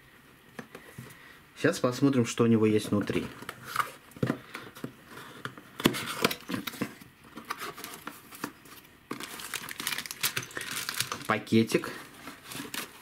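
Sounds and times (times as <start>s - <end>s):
packaging crinkling: 5.9s - 13.0s.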